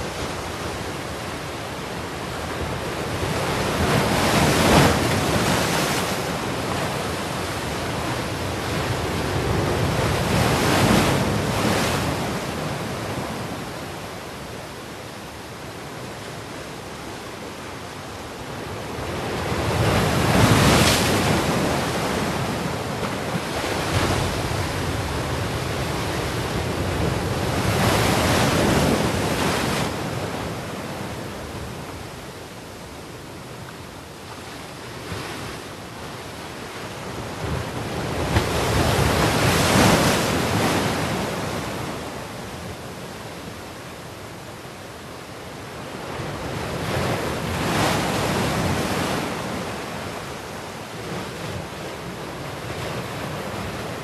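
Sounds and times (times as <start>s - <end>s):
waves breaking on beach: 0.0s - 14.6s.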